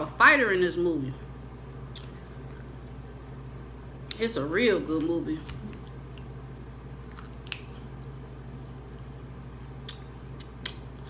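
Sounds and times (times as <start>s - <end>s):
steady low hum: 0.0s - 11.0s
wet mouth clicks: 1.9s - 2.4s, 7.1s - 8.2s, 9.2s - 11.0s
person chewing food: 5.6s - 11.0s.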